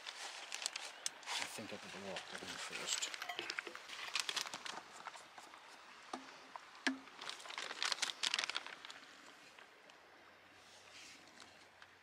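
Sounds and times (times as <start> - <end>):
plastic and cardboard crinkling: 0.0 - 5.8, 6.9 - 9.7.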